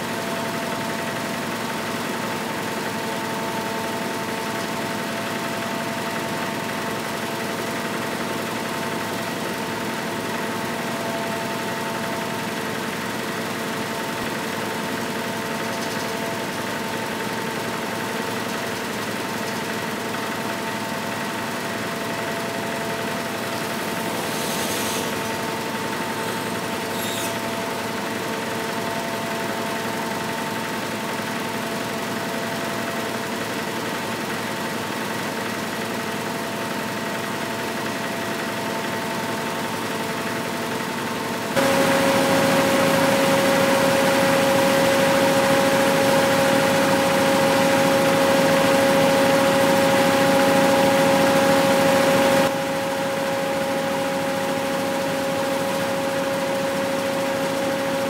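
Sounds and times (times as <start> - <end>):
small engine running: 0.0 - 58.0
spinning spindles: 41.6 - 52.5.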